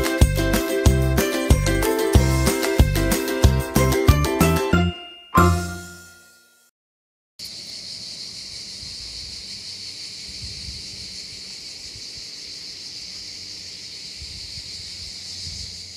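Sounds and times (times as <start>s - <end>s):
insects chorus: 7.4s - 15.9s.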